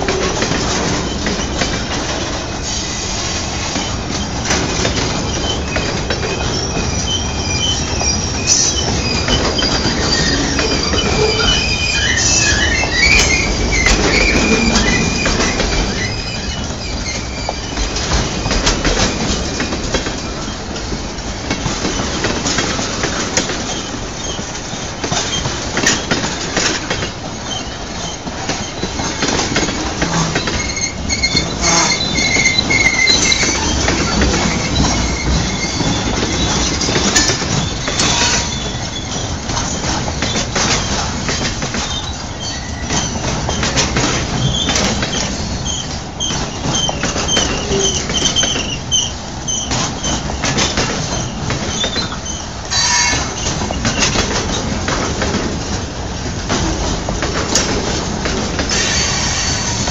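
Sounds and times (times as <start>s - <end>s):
train wheels clacking over rail joints: 0.0s - 59.9s
high wheel squeal: 5.0s - 17.9s, 27.4s - 41.0s, 44.4s - 54.1s, 58.6s - 59.9s.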